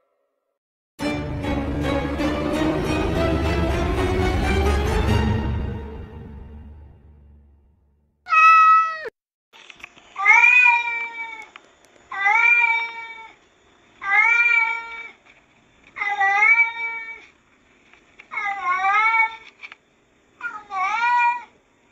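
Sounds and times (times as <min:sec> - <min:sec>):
cat meowing loudly: 0:08.3 - 0:09.1, 0:10.2 - 0:11.5, 0:12.1 - 0:13.4, 0:14.0 - 0:15.2, 0:16.0 - 0:17.3, 0:18.3 - 0:19.5, 0:20.4 - 0:21.5.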